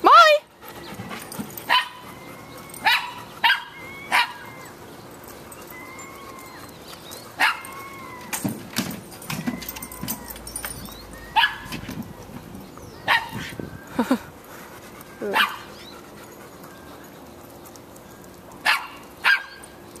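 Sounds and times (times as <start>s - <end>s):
small dog yapping: 1.7s - 2.1s, 2.8s - 4.7s, 7.4s - 8.4s, 11.4s - 11.8s.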